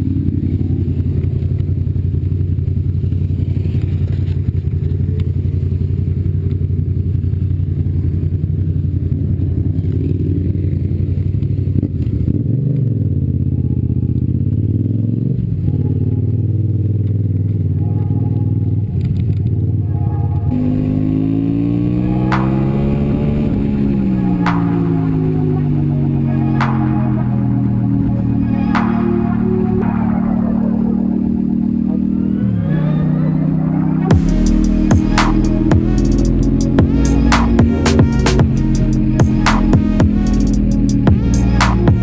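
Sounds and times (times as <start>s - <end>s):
motorcycle engine running: 0.0s - 42.0s.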